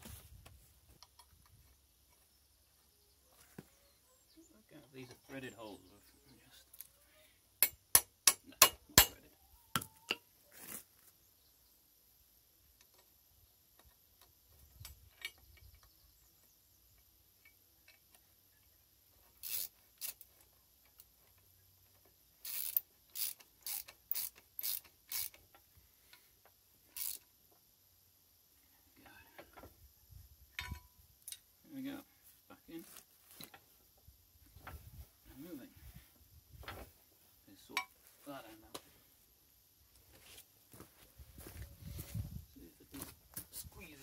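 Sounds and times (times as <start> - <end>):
ratchet spanner clicking: 19.4 - 20.3, 22.4 - 25.6, 26.9 - 27.3.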